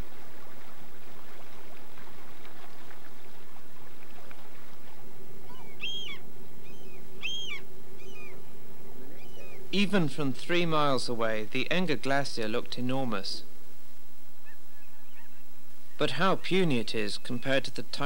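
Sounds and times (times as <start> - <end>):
steady hum: 0.0 - 18.0
gull calling: 5.4 - 10.4, 14.4 - 17.4.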